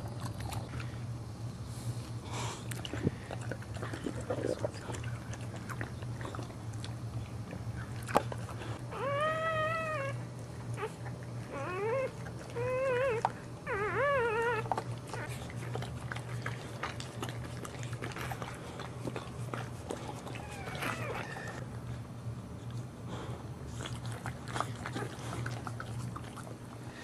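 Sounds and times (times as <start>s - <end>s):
puppy crying: 8.8s - 15.8s, 20.2s - 21.6s.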